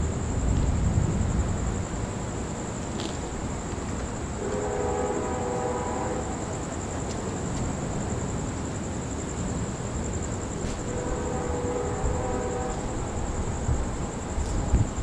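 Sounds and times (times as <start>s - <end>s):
low outdoor rush: 0.0s - 15.0s
pulsing insect trill: 0.0s - 15.0s
distant train horn: 4.4s - 6.8s, 10.7s - 14.8s.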